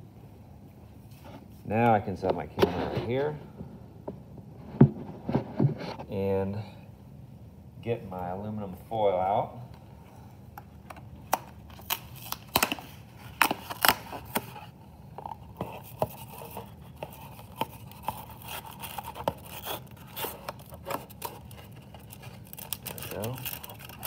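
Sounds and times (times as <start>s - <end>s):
cardboard and foil crinkling: 15.7s - 24.0s.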